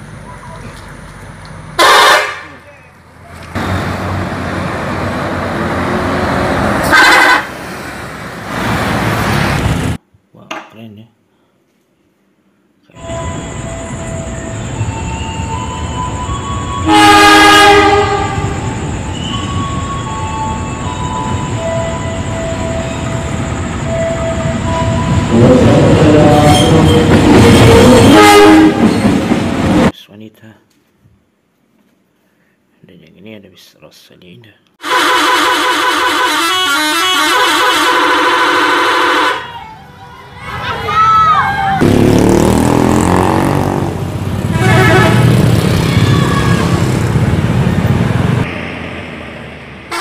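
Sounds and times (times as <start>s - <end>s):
locomotive rumbling: 0.0s - 10.0s, 13.0s - 29.9s, 37.8s - 50.0s
loud horn blast: 1.8s - 2.6s, 6.8s - 7.6s, 16.8s - 18.6s, 25.0s - 28.9s, 34.8s - 39.6s, 41.8s - 46.8s
bus engine driving past: 2.4s - 10.0s, 39.5s - 50.0s.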